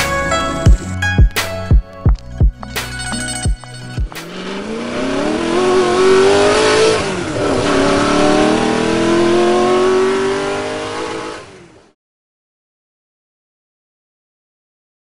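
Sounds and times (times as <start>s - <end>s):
vehicle engine revving: 4.0s - 12.0s.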